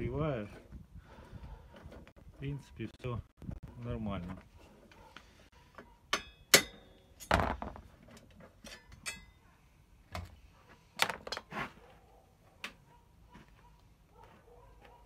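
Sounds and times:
metal clanks of bicycle crankset: 8.6s - 9.4s.

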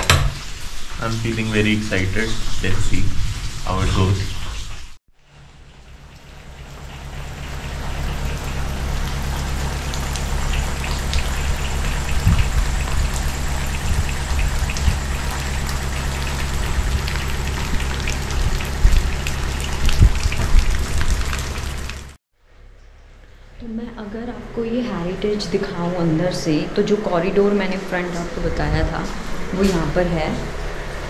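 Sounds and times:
steady rain: 0.0s - 22.2s
raindrops striking surfaces: 0.0s - 24.1s
low hum: 5.5s - 31.0s.

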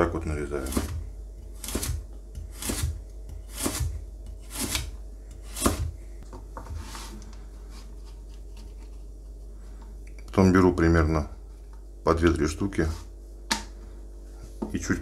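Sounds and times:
knife slicing carrot on board: 0.6s - 5.9s
slices scraping on board: 0.6s - 5.9s.

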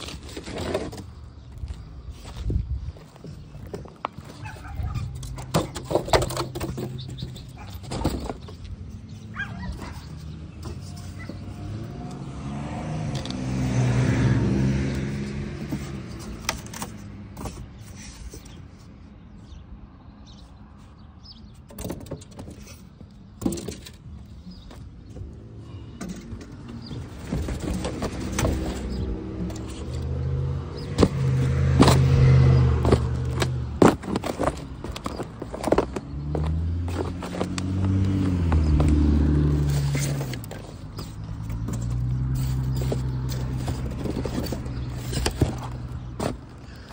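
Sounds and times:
vehicle passing: 8.8s - 17.3s, 25.2s - 46.9s.

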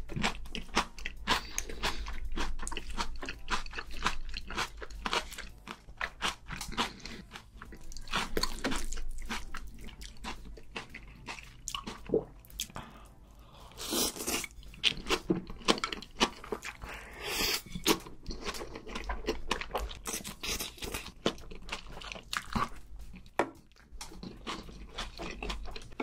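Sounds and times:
wet chewing and crunching: 0.0s - 26.0s.

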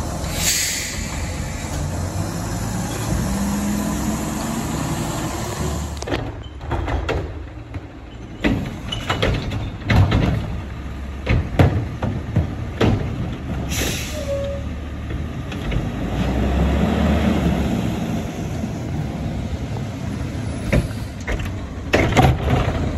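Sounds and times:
air hiss: 0.2s - 2.1s
trash cart knocking and banging: 6.0s - 14.0s, 20.6s - 22.9s.

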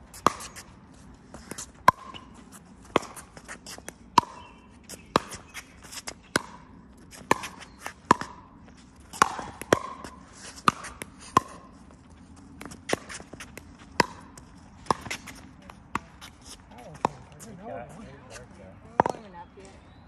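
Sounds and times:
ball bouncing on hard court: 1.4s - 3.5s, 4.2s - 5.5s, 6.3s - 11.8s, 12.6s - 17.4s, 18.8s - 19.7s.

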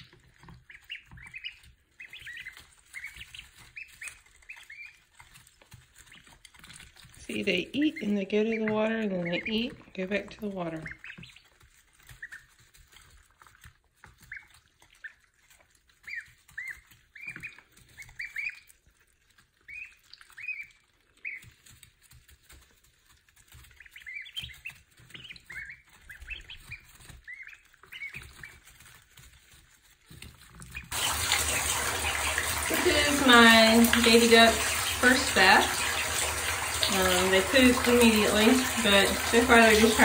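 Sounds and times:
ducklings peeping: 0.0s - 40.0s
tap running into bathtub: 30.9s - 40.0s.

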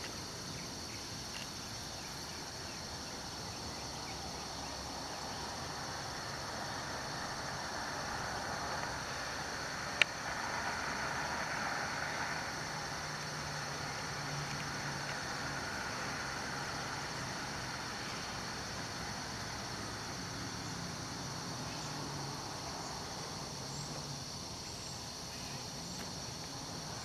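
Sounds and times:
insects chorus: 0.0s - 27.0s
vehicle passing: 4.4s - 24.4s.

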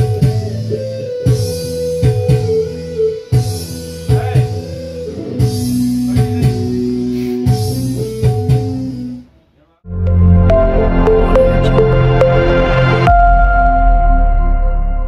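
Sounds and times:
music with guitar and bass: 0.0s - 9.3s, 9.9s - 15.0s.

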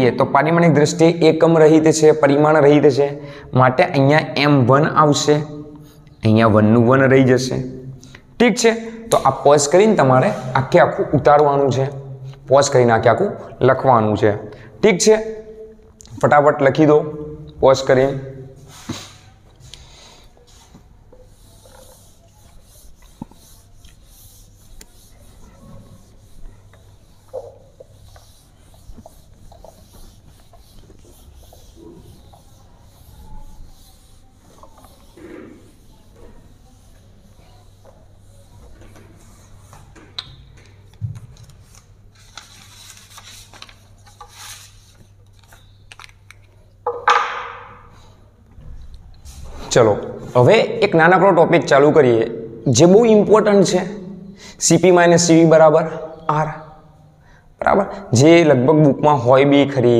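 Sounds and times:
steady low hum: 14.5s - 46.8s
duster rubbing on whiteboard: 18.6s - 40.0s.

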